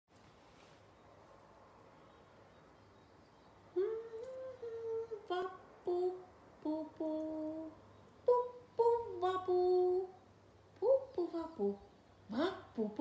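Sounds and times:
woman humming: 3.8s - 10.2s, 10.8s - 13.0s.

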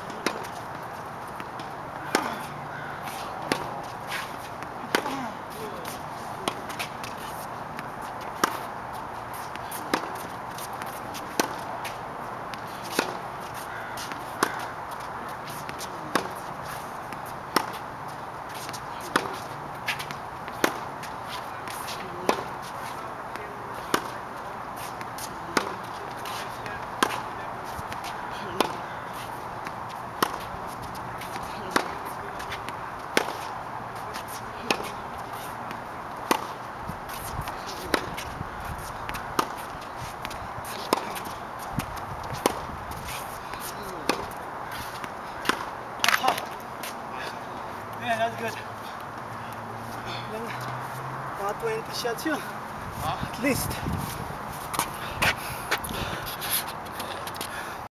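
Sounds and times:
racket striking tennis balls: 0.0s - 52.6s, 53.2s - 57.5s
tennis ball bounces: 0.0s - 52.6s, 54.4s - 55.9s.

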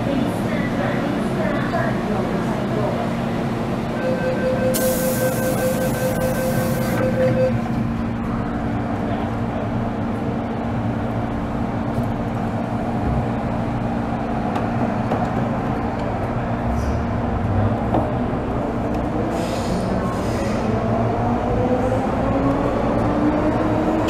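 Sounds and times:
wheels rumbling on rails: 6.8s - 24.0s.

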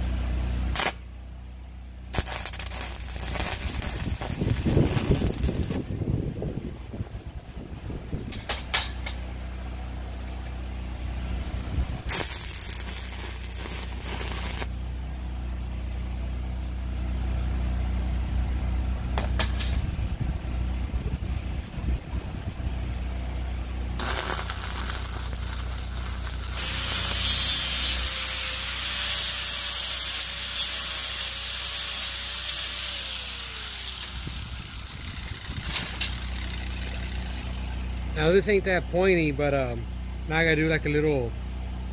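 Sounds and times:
angle grinder grinding steel: 2.2s - 5.8s, 12.1s - 14.7s, 24.0s - 37.2s
burst of hiss: 12.1s - 14.7s, 24.0s - 35.0s.

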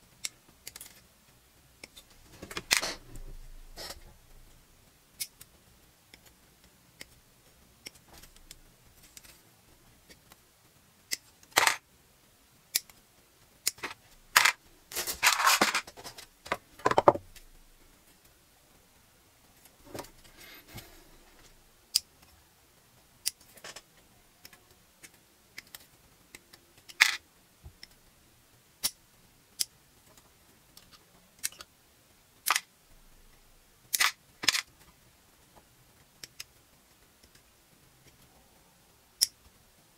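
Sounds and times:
plastic parts clattering: 2.4s - 3.0s, 11.5s - 11.8s, 13.7s - 17.2s, 33.9s - 34.7s.

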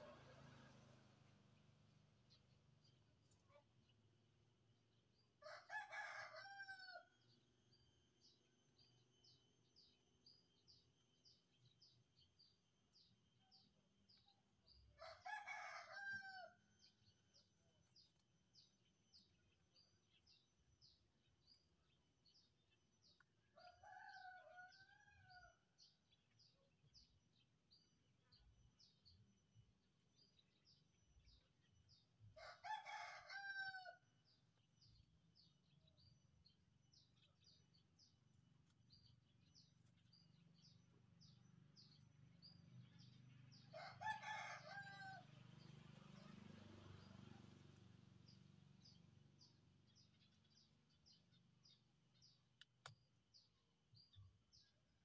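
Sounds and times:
rooster crowing: 5.4s - 7.0s, 15.0s - 16.6s, 32.4s - 34.0s, 43.7s - 45.3s.

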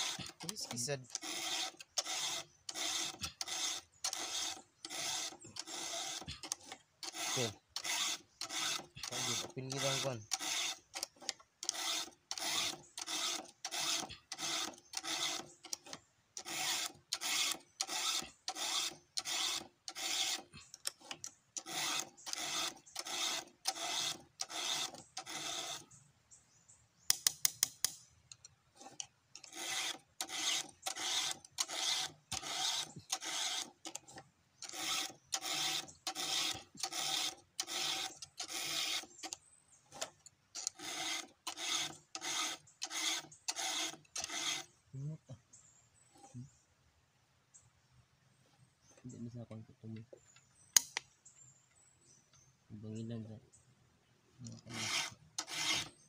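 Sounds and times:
file rasping on chainsaw chain: 0.0s - 26.0s, 27.1s - 44.8s, 54.6s - 56.0s
sharp clicks: 27.0s - 44.7s, 50.0s - 51.2s.

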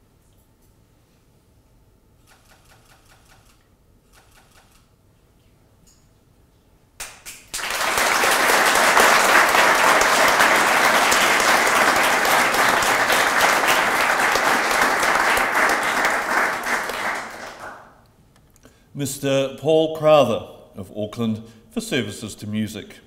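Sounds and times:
audience applauding: 7.0s - 18.0s.

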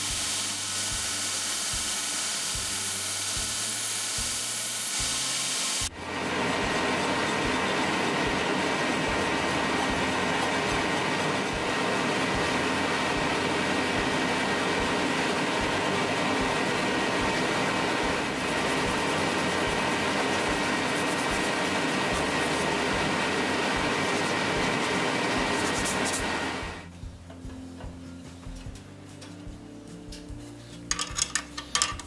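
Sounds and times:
shop machine droning: 0.0s - 29.8s
faint machine whine: 5.8s - 30.4s.

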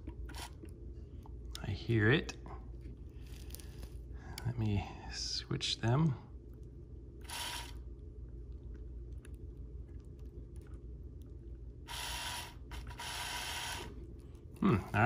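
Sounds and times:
small electric motor whirring: 7.2s - 7.8s, 11.9s - 14.0s.

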